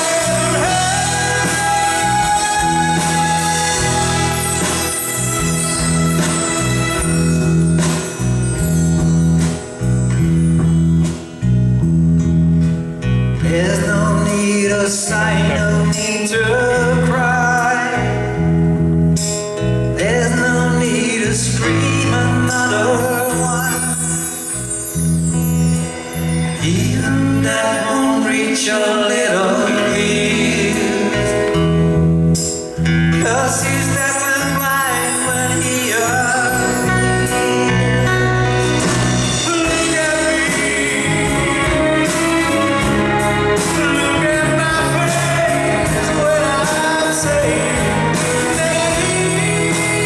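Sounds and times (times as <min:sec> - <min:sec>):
man singing: 0:00.0 - 0:07.4, 0:13.4 - 0:18.6, 0:19.9 - 0:24.8, 0:26.6 - 0:32.0, 0:33.1 - 0:50.0
bass notes: 0:00.0 - 0:27.6, 0:29.8 - 0:50.0
acoustic guitar: 0:00.0 - 0:50.0
electric guitar: 0:00.0 - 0:50.0
live band playing soft rock: 0:00.0 - 0:50.0.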